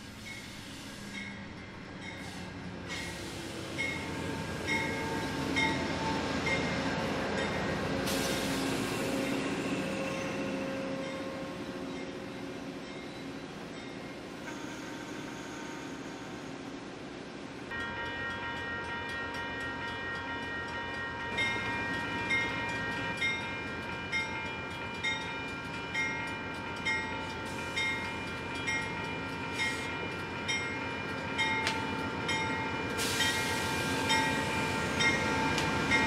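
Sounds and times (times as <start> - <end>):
high-pitched train squeal: 0.0 - 16.7, 32.2 - 36.0
locomotive bell ringing: 3.8 - 16.5, 17.7 - 36.0.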